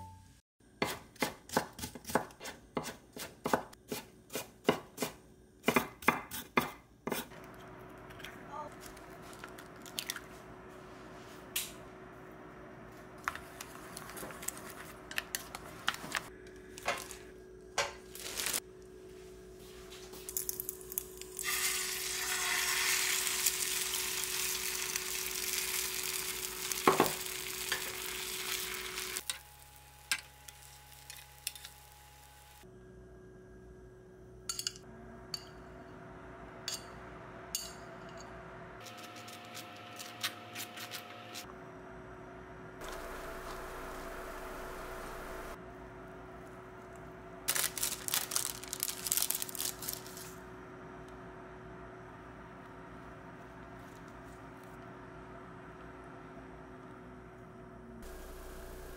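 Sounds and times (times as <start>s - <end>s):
egg mixture sizzling in pan: 20.6s - 32.6s.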